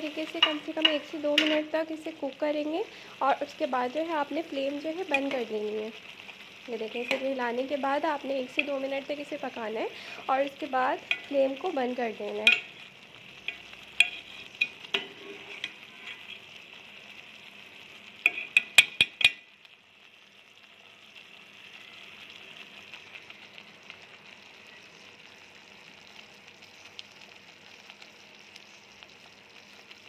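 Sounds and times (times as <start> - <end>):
curry bubbling in a pot: 0.1 - 30.0
metal spoon clinking on pot: 11.0 - 11.3, 12.4 - 12.8, 13.5 - 16.3, 18.2 - 19.5.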